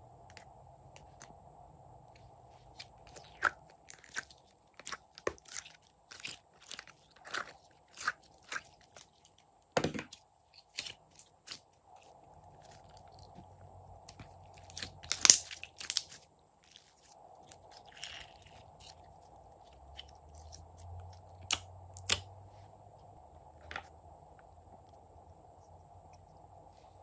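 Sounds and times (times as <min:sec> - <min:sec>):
slime popping and crackling: 0:03.0 - 0:09.3, 0:14.2 - 0:19.2.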